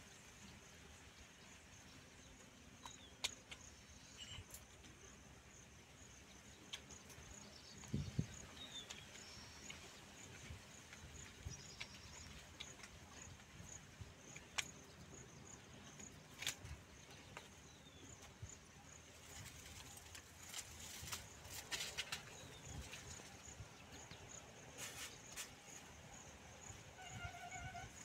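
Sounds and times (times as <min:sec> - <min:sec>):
light clicks and rustles: 0:19.1 - 0:25.8.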